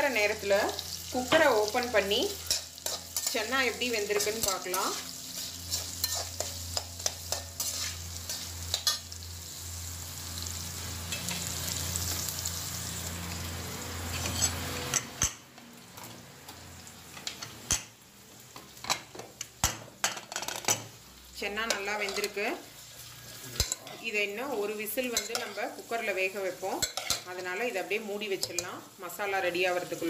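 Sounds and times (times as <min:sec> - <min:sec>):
onions sizzling in hot oil: 0:00.0 - 0:30.0
metal spatula scraping a pan: 0:00.8 - 0:09.2, 0:14.0 - 0:15.3, 0:25.0 - 0:25.9, 0:26.8 - 0:27.4.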